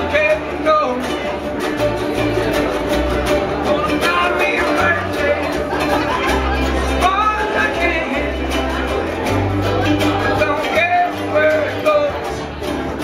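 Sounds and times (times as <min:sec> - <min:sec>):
low bass notes: 0:00.0 - 0:13.0
ukuleles strummed: 0:00.0 - 0:13.0
person singing: 0:03.4 - 0:12.6.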